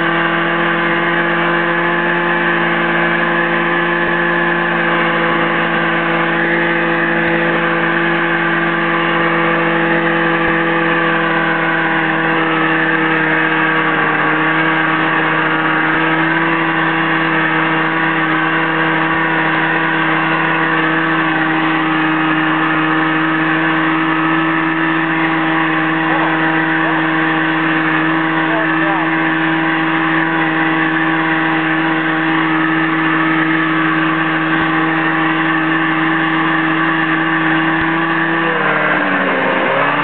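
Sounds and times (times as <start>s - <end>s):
snowmobile engine running: 0.0s - 40.0s.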